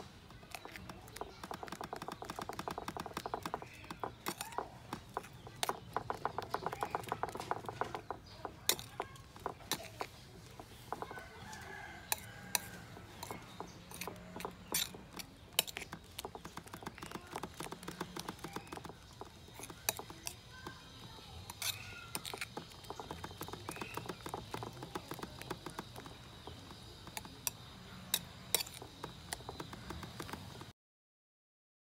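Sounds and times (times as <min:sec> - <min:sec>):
chickens clucking: 0:00.1 - 0:30.7
spoon clicking against a bowl: 0:12.1 - 0:17.1.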